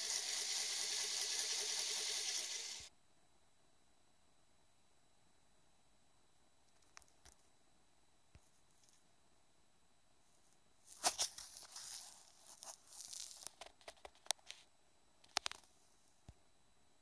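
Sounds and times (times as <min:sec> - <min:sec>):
drill bit grinding into glass: 0:00.0 - 0:02.9.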